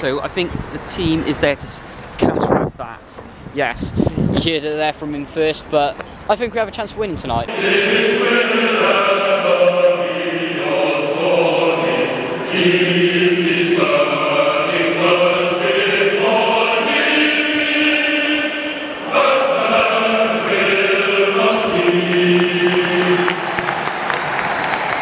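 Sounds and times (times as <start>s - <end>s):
football crowd singing: 7.5s - 25.0s.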